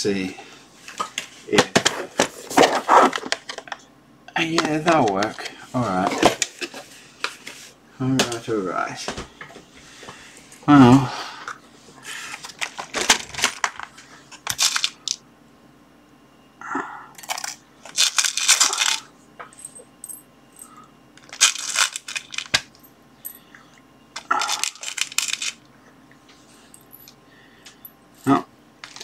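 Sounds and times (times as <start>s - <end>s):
metal screws rattling in plastic box: 21.2s - 22.6s, 24.5s - 25.6s.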